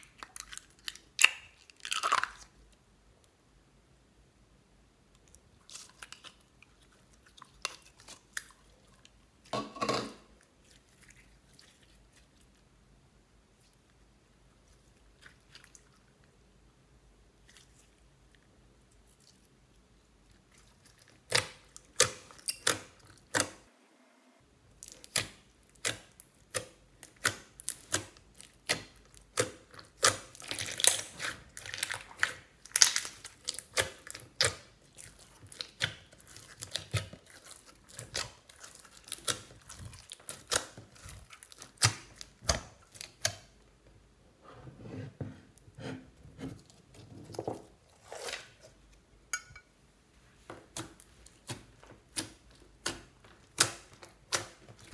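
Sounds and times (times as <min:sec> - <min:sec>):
slime squishing: 0:05.2 - 0:12.7, 0:13.4 - 0:16.2, 0:17.4 - 0:23.7, 0:24.7 - 0:43.6, 0:50.6 - 0:54.9.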